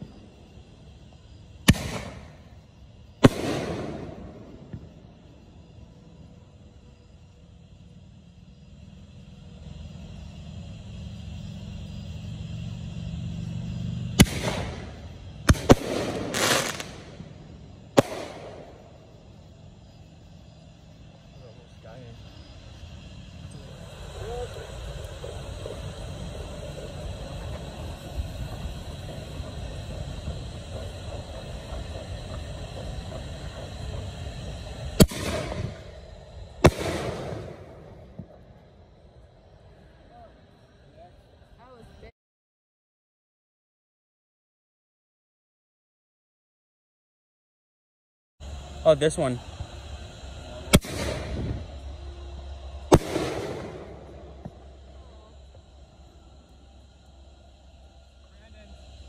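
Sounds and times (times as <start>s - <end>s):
fireworks bangs: 0.0s - 5.6s, 14.1s - 20.0s, 21.3s - 38.6s, 49.1s - 55.7s
crackling hiss: 0.0s - 42.1s, 48.4s - 59.0s
low steady rumble: 0.0s - 42.1s, 48.4s - 59.0s.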